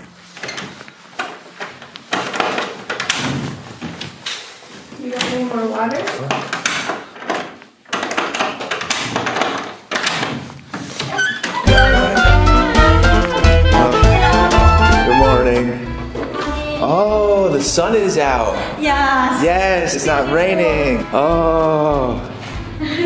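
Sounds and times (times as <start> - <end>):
door latch clicking and knocking: 6.3 - 10.4.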